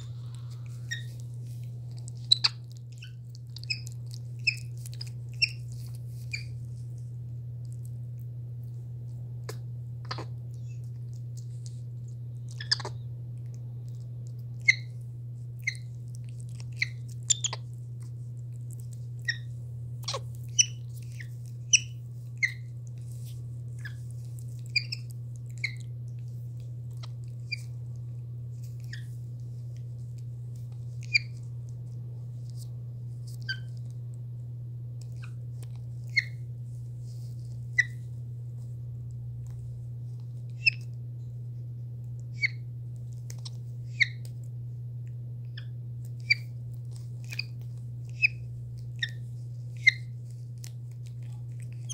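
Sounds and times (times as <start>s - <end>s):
monkeys chirping and squeaking: 0.0s - 1.2s, 2.0s - 6.6s, 10.1s - 10.8s, 12.5s - 13.0s, 14.5s - 15.0s, 15.6s - 17.7s, 19.2s - 22.7s, 23.8s - 25.8s, 27.0s - 27.7s, 28.8s - 29.2s, 31.0s - 31.4s, 33.4s - 33.8s, 36.0s - 36.4s, 37.8s - 38.0s, 40.6s - 40.9s, 42.3s - 42.6s, 43.4s - 44.2s, 45.5s - 46.6s, 47.2s - 50.2s, 51.3s - 51.9s
steady low hum: 0.0s - 51.9s.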